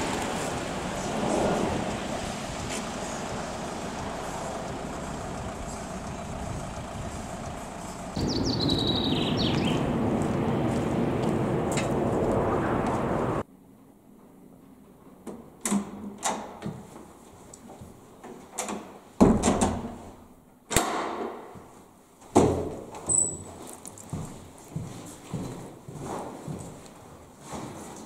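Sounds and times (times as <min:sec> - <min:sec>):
outdoor noise: 0:00.0 - 0:28.0
footsteps indoors: 0:08.2 - 0:13.1, 0:16.4 - 0:18.9, 0:21.3 - 0:28.0
doors opening and shutting: 0:18.5 - 0:20.0, 0:22.4 - 0:23.6.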